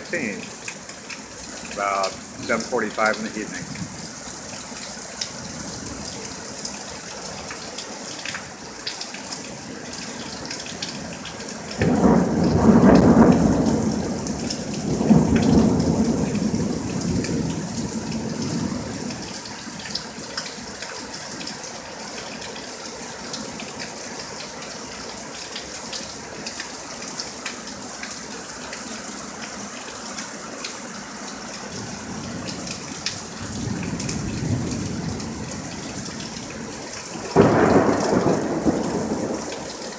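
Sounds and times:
steady rain: 0.0 - 39.9
thunder rumbling: 11.8 - 19.0, 33.3 - 36.2, 37.1 - 39.7.

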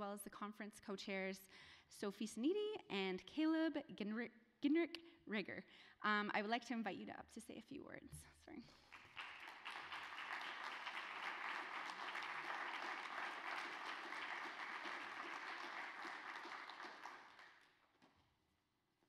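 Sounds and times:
audience applauding: 8.7 - 17.7.

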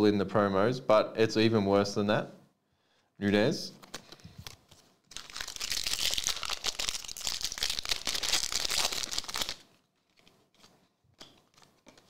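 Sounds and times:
foil wrapper crinkling: 3.9 - 12.0.

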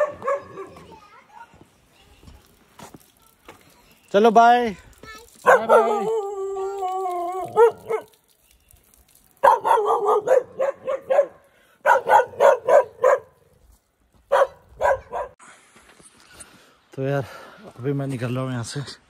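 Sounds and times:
puppy barking and yipping: 0.0 - 0.9, 5.4 - 6.3, 7.3 - 8.2, 9.4 - 13.4, 14.3 - 15.4.

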